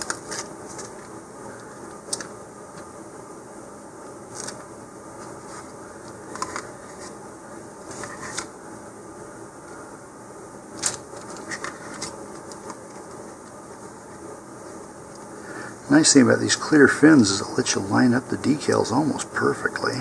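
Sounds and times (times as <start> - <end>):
room hum: 0.0 - 20.0.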